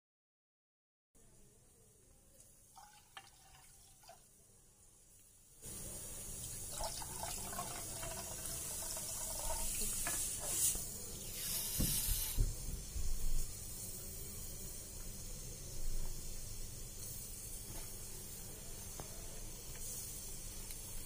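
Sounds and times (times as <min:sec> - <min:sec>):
water pouring into pot: 0:02.6 - 0:12.4.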